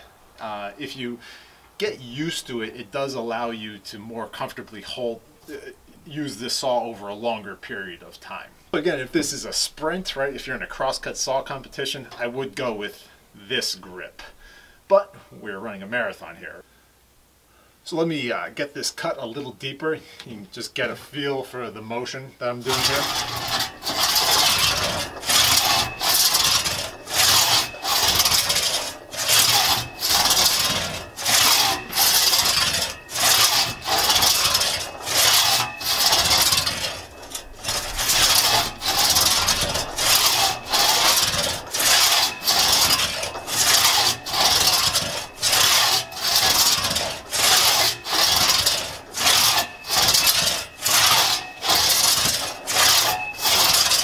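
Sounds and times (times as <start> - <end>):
crosscut saw cutting a log: 22.6 - 54.0.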